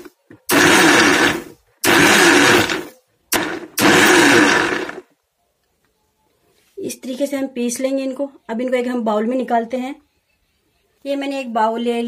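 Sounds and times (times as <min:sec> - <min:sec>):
mixer grinder pulsing: 0:00.5 - 0:05.0.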